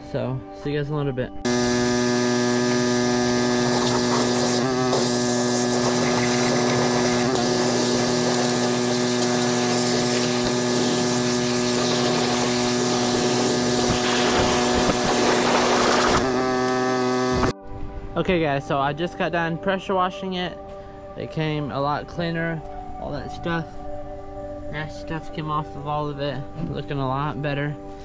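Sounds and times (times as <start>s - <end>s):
pressure washer humming: 1.5s - 17.5s
water jet hissing on metal: 3.6s - 16.2s.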